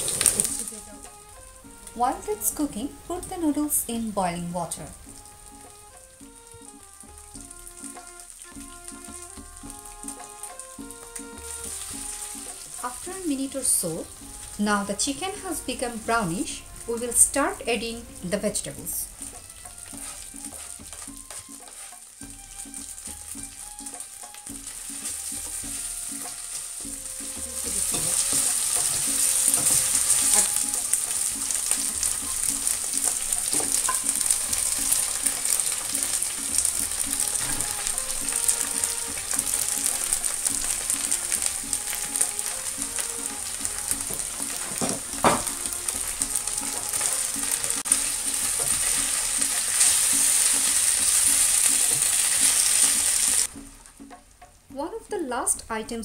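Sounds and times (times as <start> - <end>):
wooden spatula scraping wok: 0.0 - 1.8, 5.1 - 54.1
food sizzling in hot oil: 0.0 - 54.4
faint background music: 0.0 - 56.0.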